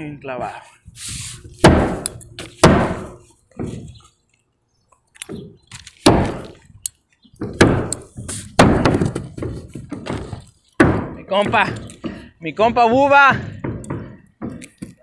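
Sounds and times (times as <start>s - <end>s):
hammer driving nails into wood: 1.6s - 3.2s, 5.2s - 6.7s, 7.4s - 12.2s.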